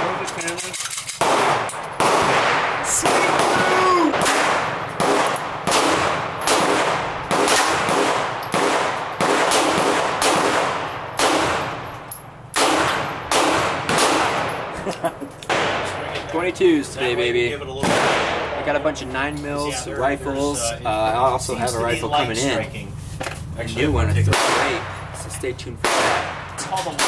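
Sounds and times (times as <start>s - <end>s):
handgun shots with echo: 0.4s - 11.8s, 12.5s - 14.7s, 17.8s - 18.6s, 25.8s - 27.0s.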